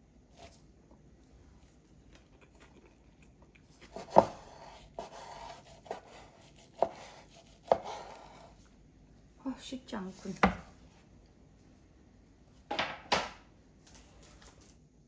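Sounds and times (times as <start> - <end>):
rustle of roll being sliced: 0.3 - 0.7.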